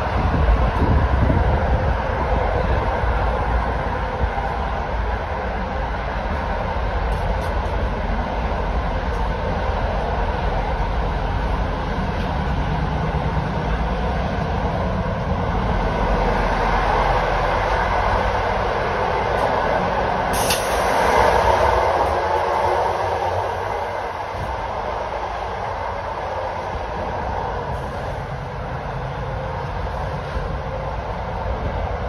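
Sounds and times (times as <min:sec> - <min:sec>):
train wheels rumbling on rails: 0:00.0 - 0:32.0.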